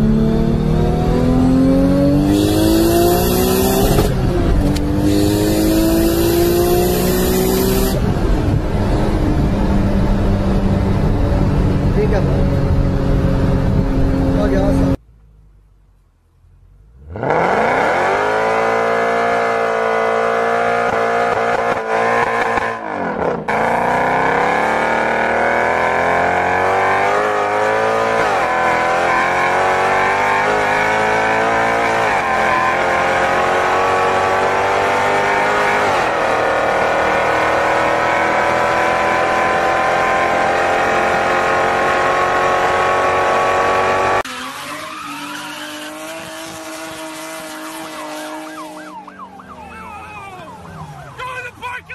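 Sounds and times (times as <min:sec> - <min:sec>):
car engine revving through gears: 0:00.0 - 0:15.0, 0:16.9 - 0:49.5.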